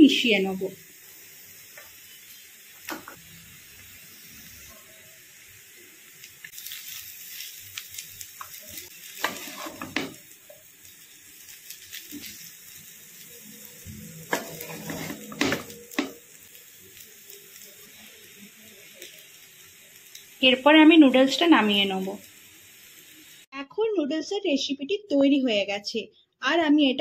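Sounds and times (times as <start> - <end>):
noodles sizzling in a frying pan: 0.0 - 23.5
spatula scraping and stirring: 8.4 - 10.3, 13.9 - 16.2.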